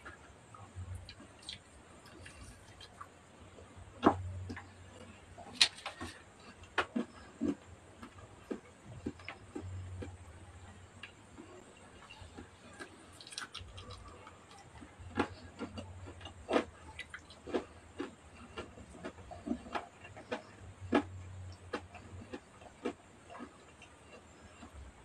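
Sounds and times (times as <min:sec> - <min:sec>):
faint low hum: 0:00.0 - 0:25.0
chewing and lip smacks: 0:00.5 - 0:03.1, 0:11.0 - 0:24.8.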